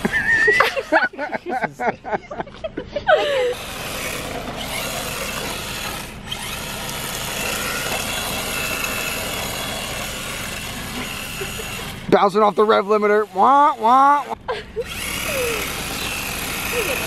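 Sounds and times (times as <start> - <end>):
electric motor whine: 0.0 - 0.9, 3.4 - 17.0.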